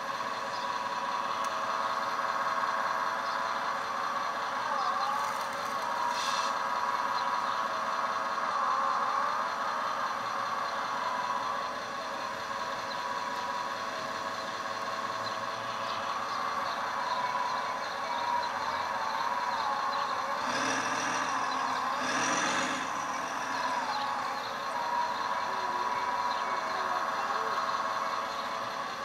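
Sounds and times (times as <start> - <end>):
hydraulic pump whining: 20.3 - 24.8.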